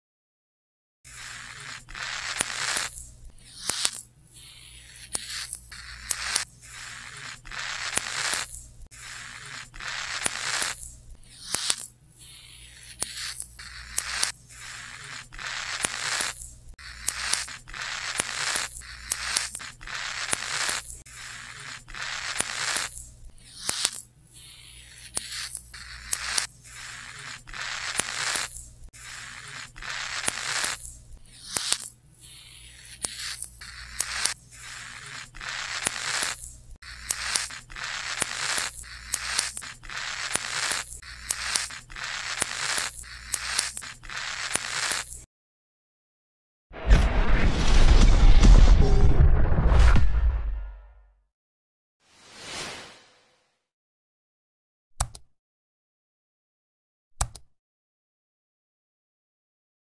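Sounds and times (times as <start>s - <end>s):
tarantula hissing: 1.1s - 45.2s.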